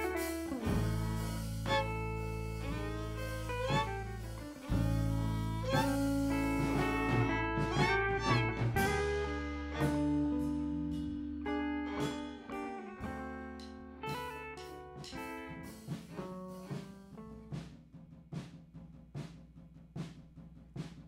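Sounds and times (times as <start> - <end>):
electric guitar picking: 0.0 - 17.5
held low bass note: 0.6 - 12.3.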